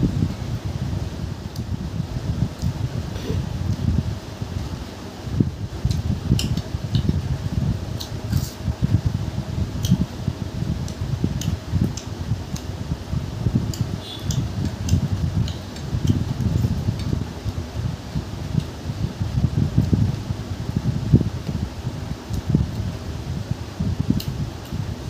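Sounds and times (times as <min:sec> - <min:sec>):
steady low rumble: 0:00.0 - 0:25.0.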